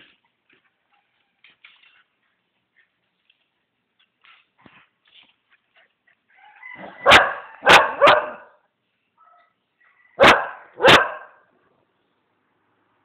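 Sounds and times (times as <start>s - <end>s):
small dogs barking: 6.8s - 8.6s, 10.2s - 11.4s.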